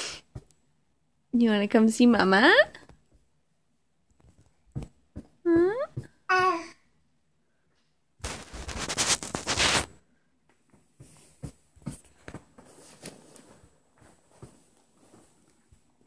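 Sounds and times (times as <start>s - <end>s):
faint taps and knocks: 4.1s - 6.3s.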